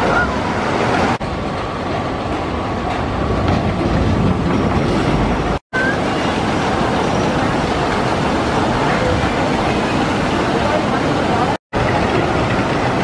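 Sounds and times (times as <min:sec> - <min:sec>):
rushing flowing water: 0:00.0 - 0:13.0
ride mechanical clatter: 0:06.6 - 0:13.0.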